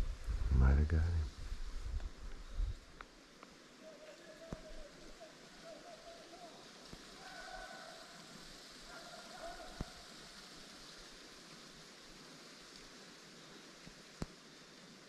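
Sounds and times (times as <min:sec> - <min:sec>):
outdoor hiss: 0:00.0 - 0:15.0
distant hounds baying: 0:05.3 - 0:10.1.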